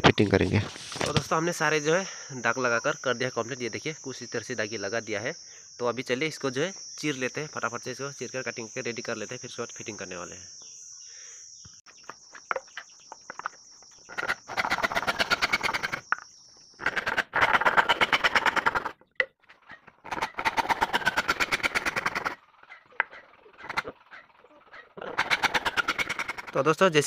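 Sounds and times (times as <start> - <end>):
handsaw ripping wood: 14.1 - 16.0, 16.8 - 23.9, 25.0 - 26.6.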